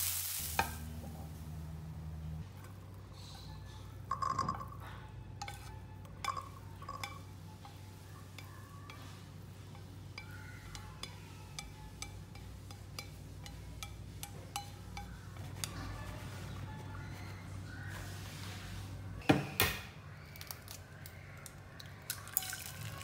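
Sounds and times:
low steady hum: 0.4s - 19.3s
utensil clinking against pan: 4.1s - 15.8s.

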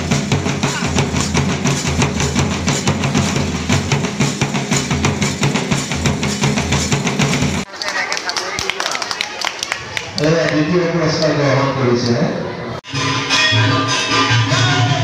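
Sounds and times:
large drum beaten fast: 0.0s - 7.7s.

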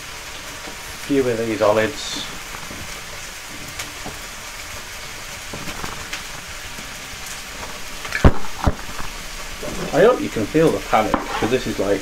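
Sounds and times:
chicken sizzling in a pan: 0.0s - 12.0s.

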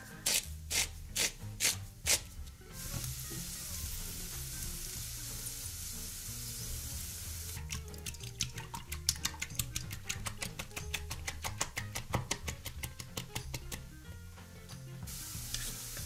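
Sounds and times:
food sizzling in a pan: 2.7s - 7.7s, 15.1s - 16.0s
sharp clicks and taps: 7.6s - 13.9s.

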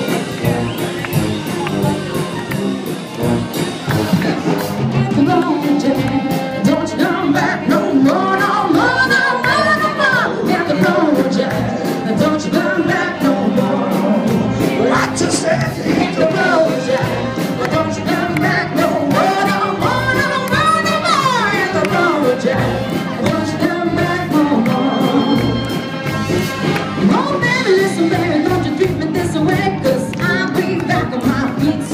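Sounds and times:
military band with brass: 0.0s - 31.9s
steady drum beat: 0.0s - 31.9s
woman singing into a microphone: 5.2s - 14.2s.

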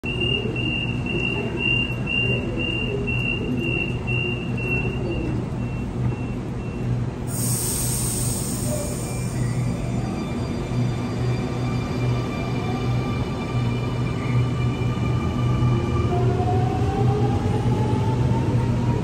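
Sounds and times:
train door warning beeps: 0.0s - 10.7s
train low hum: 0.0s - 19.0s
air hissing: 7.3s - 9.6s.

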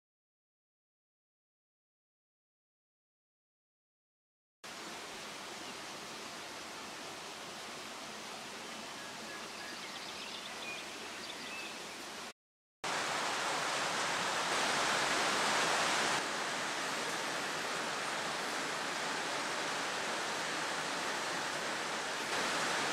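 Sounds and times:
rushing outdoor background noise: 12.9s - 22.9s.

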